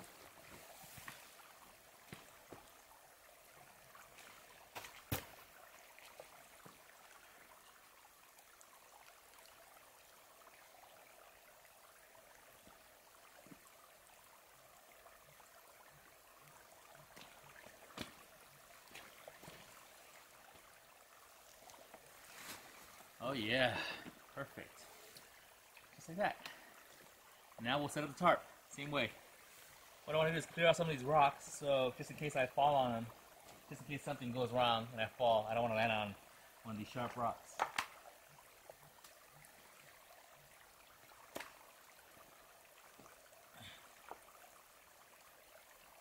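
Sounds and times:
faint steady hiss: 0:00.0 - 0:46.0.

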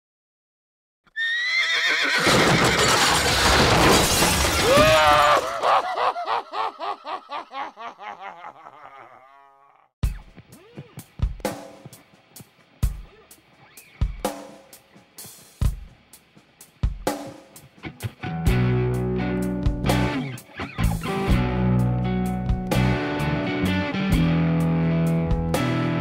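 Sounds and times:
noisy crash: 0:02.3 - 0:04.9.

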